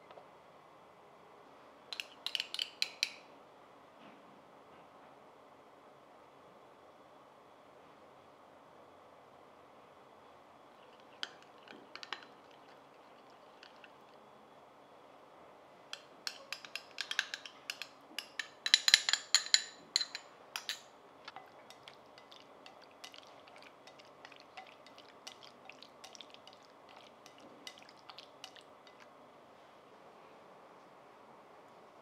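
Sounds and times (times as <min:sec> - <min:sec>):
chopsticks tapping in bowl: 0:02.0 - 0:03.2, 0:10.8 - 0:14.0, 0:16.0 - 0:29.1
utensil clinking against glass bowl: 0:10.8 - 0:14.1, 0:16.0 - 0:29.1.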